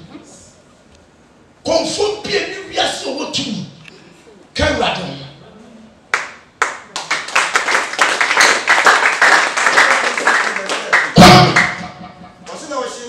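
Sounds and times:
congregation clapping: 6.1s - 12.8s.

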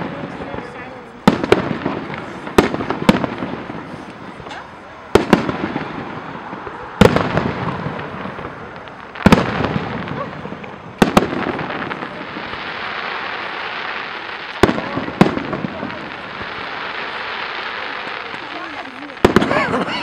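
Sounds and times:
crackling hiss of burning stars: 0.0s - 20.0s
fireworks bangs: 0.0s - 20.0s.

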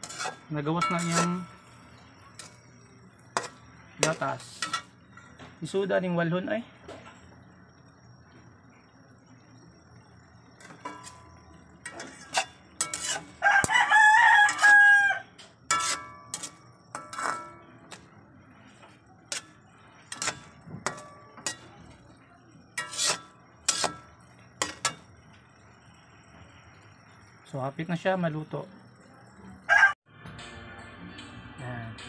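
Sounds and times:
metal spatula scraping a wok: 0.0s - 5.4s, 10.6s - 25.2s
rooster crowing: 13.4s - 15.4s, 29.7s - 30.0s.

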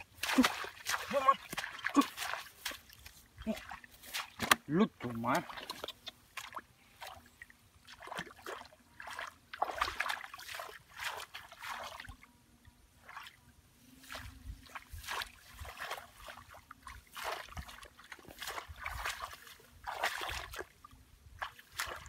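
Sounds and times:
dull thuds of wading steps: 0.0s - 7.2s, 14.1s - 20.8s, 21.4s - 22.0s
splashing in muddy water: 0.0s - 12.3s, 12.9s - 22.0s.

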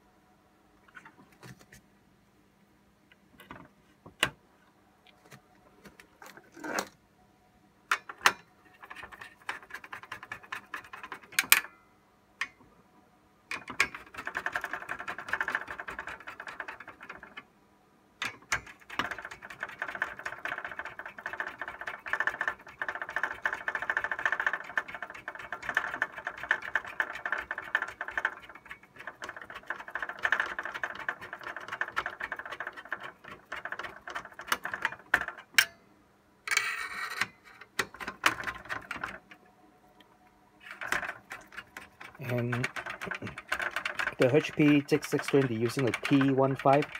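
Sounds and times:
rapid mechanical clicking and rattling: 8.1s - 11.6s, 13.5s - 17.4s, 18.2s - 35.6s, 37.8s - 39.4s, 40.6s - 46.9s.

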